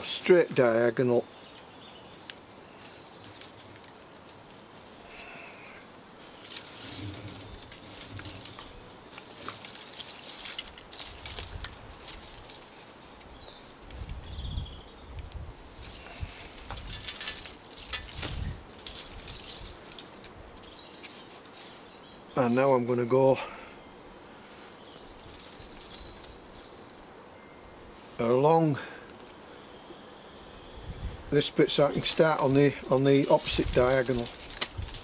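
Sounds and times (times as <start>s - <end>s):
plastic cord rustling and scraping: 6.2s - 14.4s, 15.8s - 21.8s, 25.2s - 26.4s, 31.9s - 35.0s
low bumps of wooden frame: 6.5s - 9.6s.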